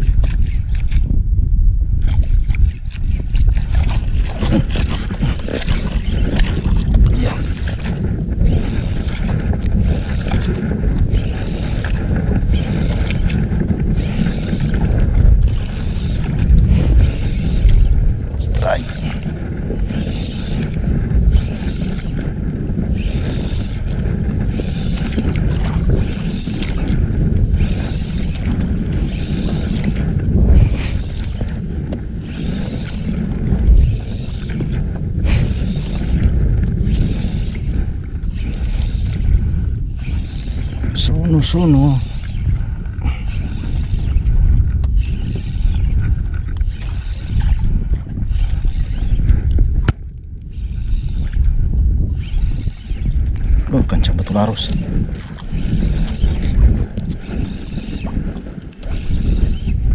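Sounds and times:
faint water washing hull: 0.0s - 59.9s
wind rumble on microphone: 0.0s - 59.9s.

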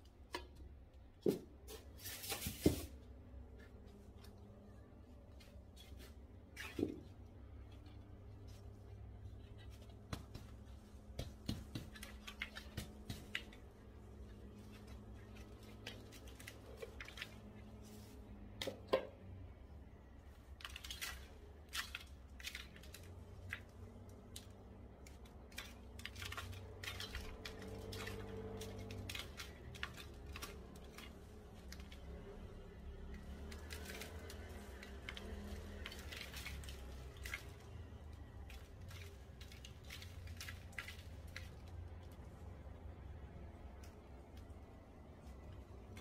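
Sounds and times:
soil rustling: 20.5s - 42.6s.

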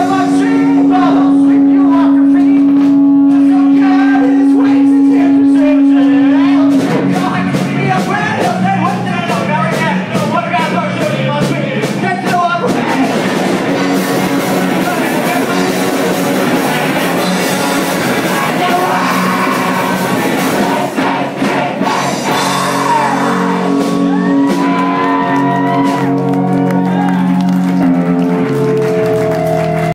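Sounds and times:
shouted vocals: 0.0s - 8.9s, 14.2s - 27.6s
electric guitars: 0.0s - 9.5s, 12.6s - 29.9s
drums: 0.0s - 29.9s.

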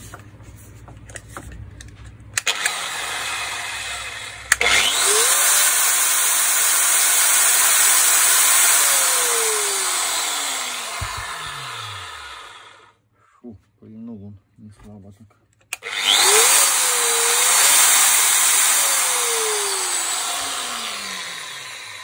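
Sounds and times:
electric motor whirring: 2.4s - 12.9s, 15.8s - 22.0s
motor winding down whine: 2.4s - 12.9s, 15.8s - 22.0s.

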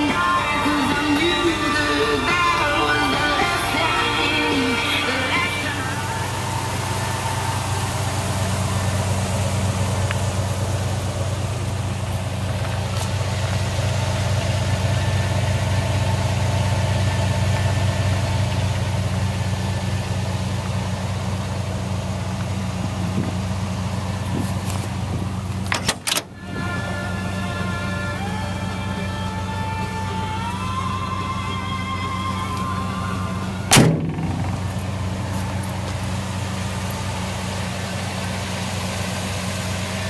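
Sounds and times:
truck engine idling: 0.0s - 40.0s
sharp knocks: 33.7s - 34.8s.

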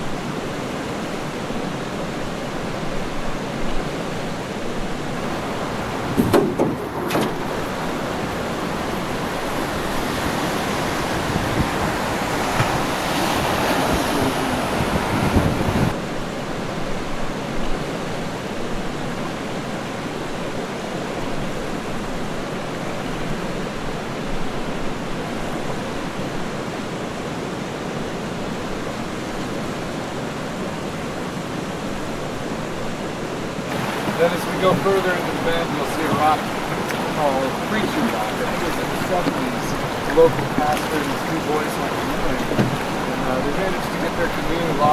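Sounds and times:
river current rushing: 0.0s - 44.9s
wind buffeting microphone: 4.8s - 16.0s.

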